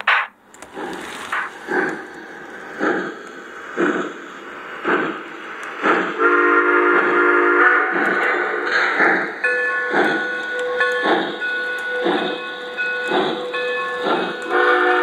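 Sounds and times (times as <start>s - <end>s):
model steam locomotive chuffing: 0.4s - 15.0s
multi-note steam whistle: 6.2s - 8.7s, 14.0s - 15.0s.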